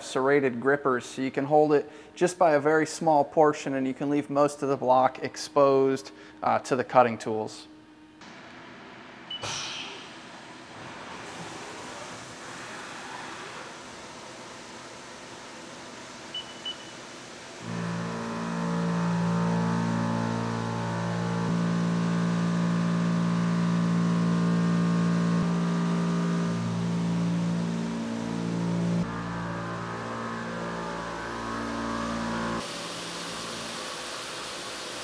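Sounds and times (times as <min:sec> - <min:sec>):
mill cutting metal hum: 0:07.7 - 0:35.0
coolant spraying with a hiss: 0:10.9 - 0:19.2, 0:31.7 - 0:35.0.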